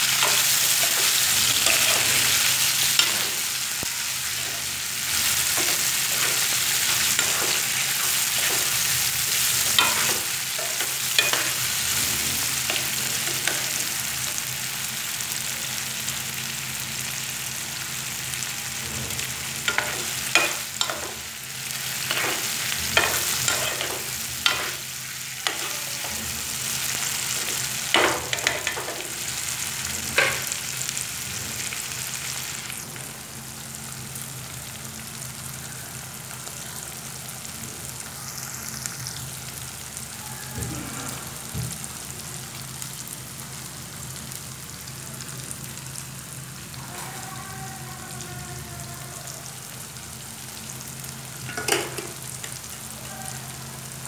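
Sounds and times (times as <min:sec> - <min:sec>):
food sizzling in oil: 0:00.0 - 0:54.0
metal spoon scraping a pan: 0:00.1 - 0:03.6, 0:04.3 - 0:14.0, 0:19.2 - 0:21.3, 0:21.9 - 0:29.3.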